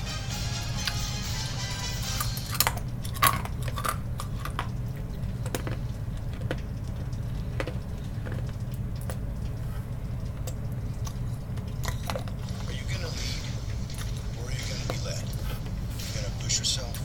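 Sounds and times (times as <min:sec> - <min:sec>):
low hum: 0:00.0 - 0:17.0
wet chewing and sucking: 0:02.2 - 0:12.7.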